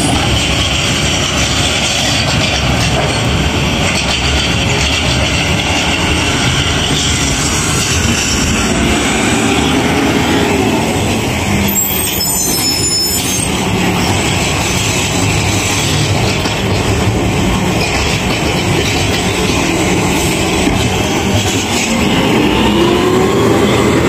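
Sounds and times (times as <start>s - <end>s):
high-pitched squeal: 6.7s - 14.2s, 21.3s - 24.0s.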